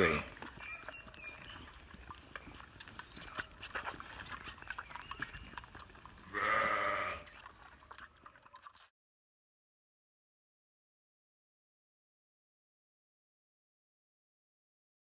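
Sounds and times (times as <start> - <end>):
sheep bleating: 0.0 - 0.4, 6.3 - 7.3
lamb sucking at bottle: 0.3 - 8.9.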